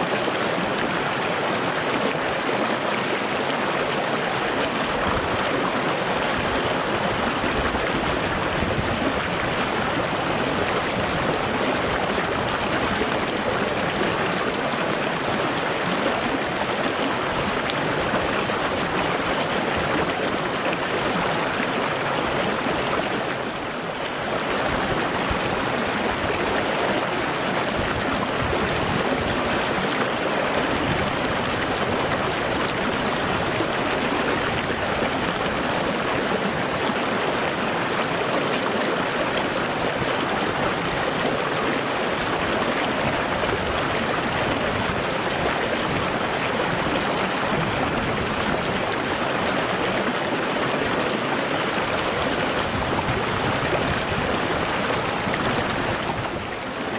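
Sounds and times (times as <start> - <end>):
stream rushing over rocks: 0.0 - 56.9.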